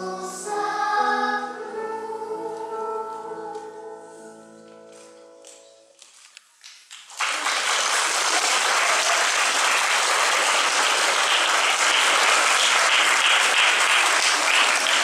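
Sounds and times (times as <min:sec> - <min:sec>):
audience applauding: 0:06.7 - 0:15.0.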